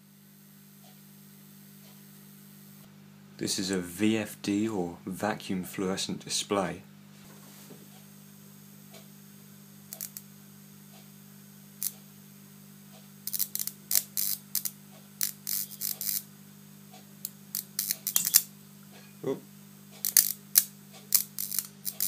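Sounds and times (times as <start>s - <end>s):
high-voltage supply hum: 0.0s - 22.0s
electric arcs snapping and crackling: 9.8s - 10.4s, 11.7s - 18.6s, 19.9s - 22.0s.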